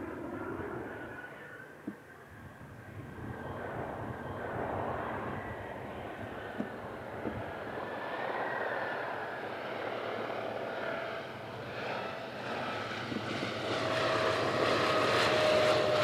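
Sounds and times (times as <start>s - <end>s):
biplane engine drone overhead: 0.0s - 16.0s.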